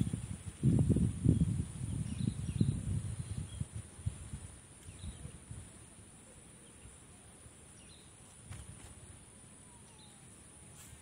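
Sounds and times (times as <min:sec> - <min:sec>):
wind rumble on microphone: 0:00.0 - 0:06.0
bird chirps: 0:01.3 - 0:03.8, 0:04.8 - 0:05.4, 0:06.2 - 0:08.7, 0:09.6 - 0:10.5.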